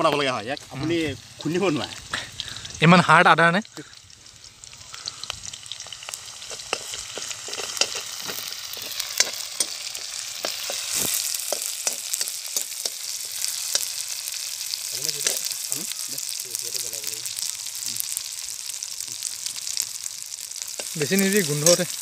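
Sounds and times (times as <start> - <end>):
onions sizzling in oil: 0.0 - 22.0
spoon scraping a pan: 6.4 - 14.1, 20.7 - 21.8.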